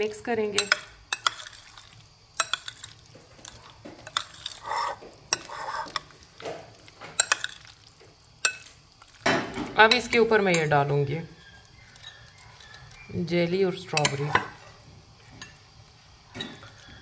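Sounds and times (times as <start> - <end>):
spoon stirring wet fruit: 0.0 - 15.7
spoon clinking against glass: 7.2 - 7.6.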